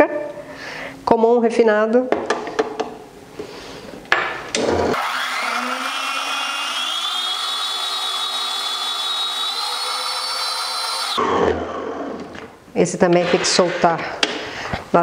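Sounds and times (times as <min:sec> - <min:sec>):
stand mixer motor whine: 0:04.6 - 0:12.5.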